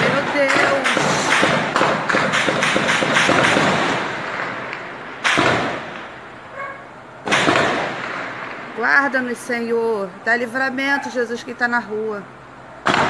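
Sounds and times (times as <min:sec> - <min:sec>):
sharp bangs: 0:00.0 - 0:09.4, 0:12.8 - 0:13.0.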